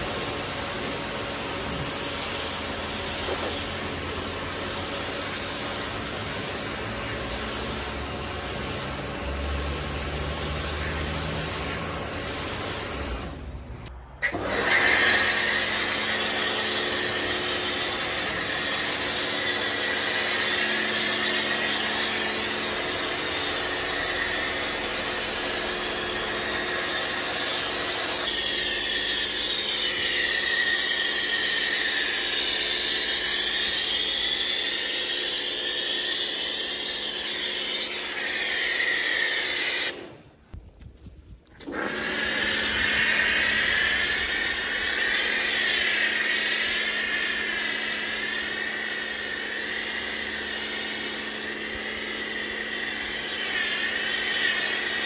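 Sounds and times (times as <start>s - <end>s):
water jet spraying: 0.0s - 22.1s, 41.6s - 55.0s
foam cannon hissing: 0.0s - 40.3s, 41.6s - 55.0s
pressure washer pump hum: 0.0s - 40.4s, 41.4s - 55.0s.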